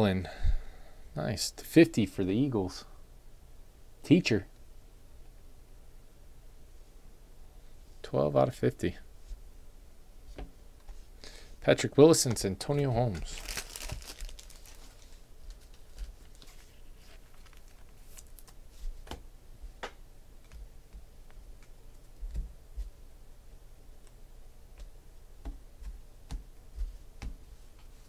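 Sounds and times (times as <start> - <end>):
low steady hum: 0.0 - 28.0
hands clicking and tapping on table: 24.8 - 27.4.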